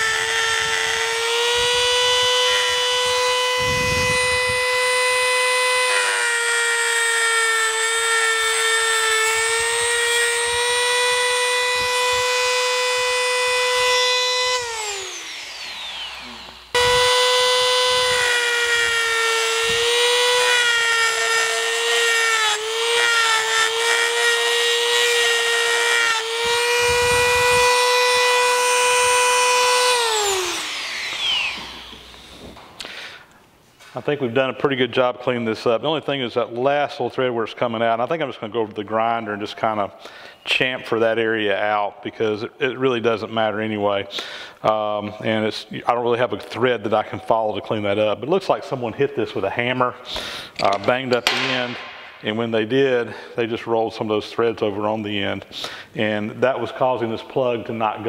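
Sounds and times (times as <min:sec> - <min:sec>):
rotary tool whining: 0:00.0 - 0:32.9.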